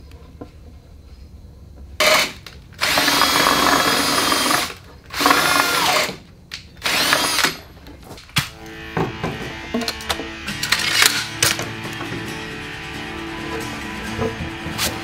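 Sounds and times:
cordless drill into wood: 2.0 - 6.2, 6.8 - 7.7.

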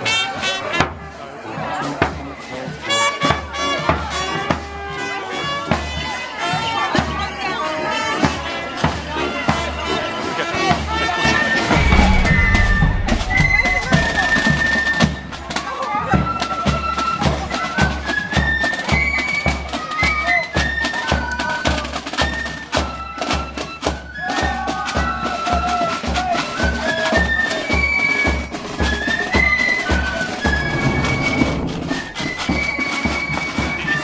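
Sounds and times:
bass drum beating: 11.7 - 14.7, 30.5 - 32.6.

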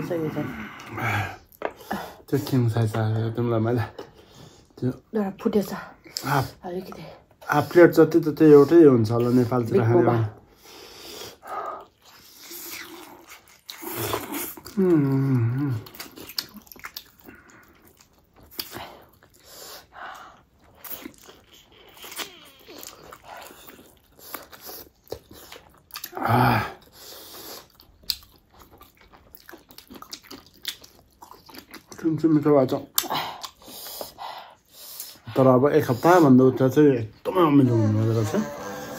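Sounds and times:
noodles slurped and chewed: 11.0 - 36.2
voiced murmur: 37.4 - 38.9.

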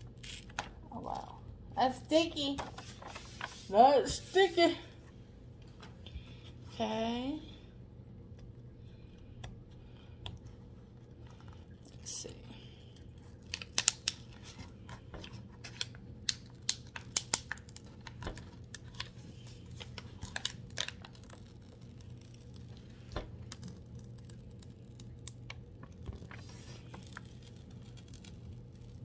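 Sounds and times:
plastic film crackling and clicking: 12.9 - 29.0.

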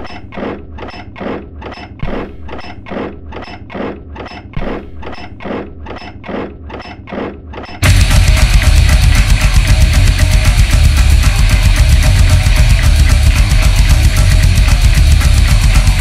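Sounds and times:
rhythmic rasping scrapes: 0.0 - 16.0
deep thud: 7.8 - 15.3.

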